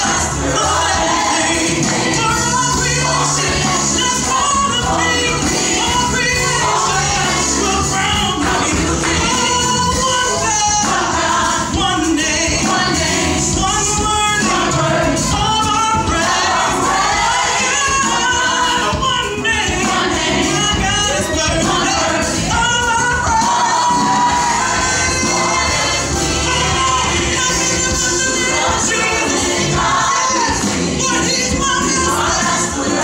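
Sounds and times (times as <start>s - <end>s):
choir singing: 0.0s - 33.0s
woman and man singing gospel: 0.0s - 33.0s.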